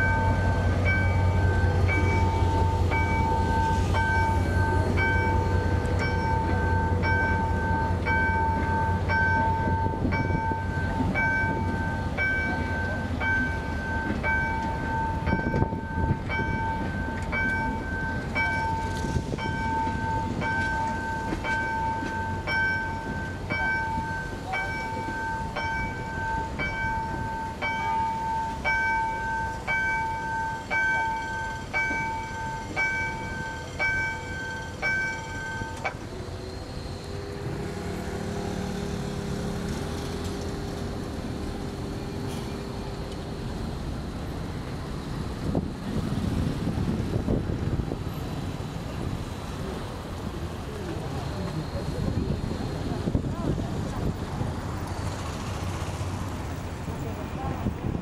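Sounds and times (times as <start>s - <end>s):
crossing warning bell dinging: 0.0s - 45.6s
train rumbling past: 0.0s - 58.0s.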